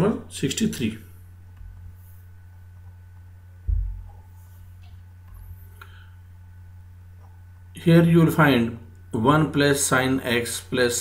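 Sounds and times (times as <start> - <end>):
low electrical hum: 0.0 - 11.0
dull thump: 3.7 - 4.2.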